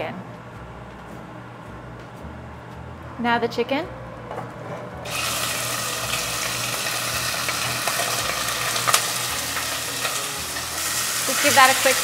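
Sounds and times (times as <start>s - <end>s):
chicken sizzling in hot oil: 5.1s - 12.0s.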